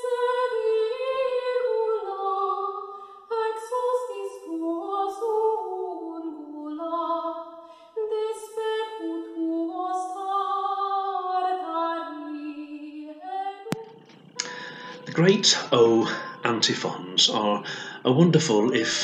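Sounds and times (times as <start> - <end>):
solo voice singing: 14.4 - 19.0.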